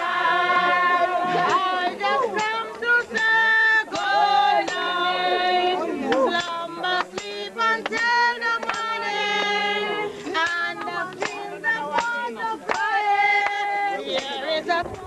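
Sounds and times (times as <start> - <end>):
group singing long notes: 0.0 - 15.0
sharp hand claps: 6.1 - 9.6, 10.4 - 14.4.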